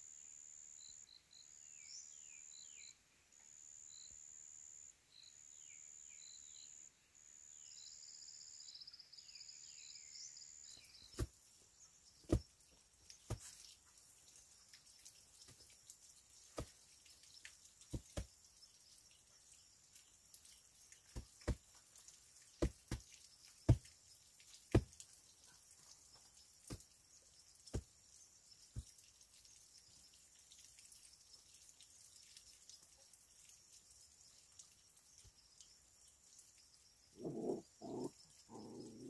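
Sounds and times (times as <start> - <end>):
stone knocking on stone: 17.9 - 18.3, 22.6 - 23.0, 24.7 - 24.9.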